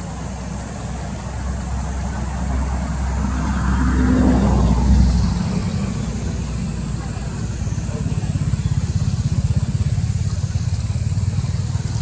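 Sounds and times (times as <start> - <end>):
vehicle passing by: 0.0 - 12.0.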